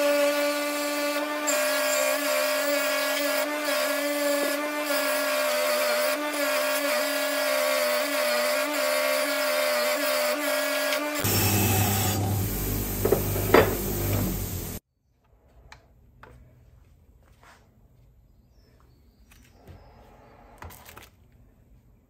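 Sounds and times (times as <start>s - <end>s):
bench grinder wire brush: 0.0s - 14.8s.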